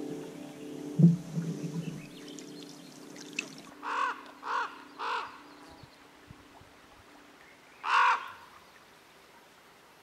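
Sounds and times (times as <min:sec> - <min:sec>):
crow cawing: 0:03.8 - 0:05.4, 0:07.8 - 0:08.4.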